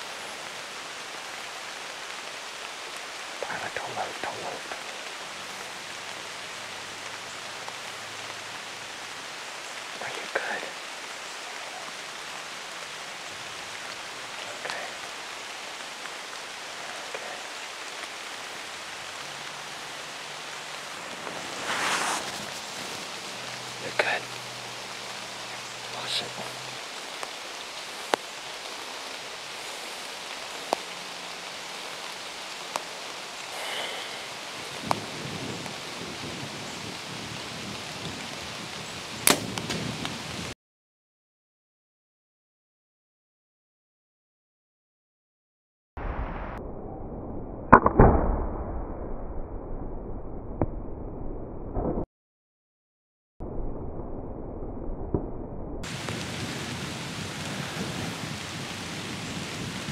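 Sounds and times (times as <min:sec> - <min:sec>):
outdoor ambient hiss: 0:00.0 - 0:40.6, 0:55.8 - 0:59.9
bow shot sharp crack: 0:39.2 - 0:40.1, 0:47.7 - 0:48.6.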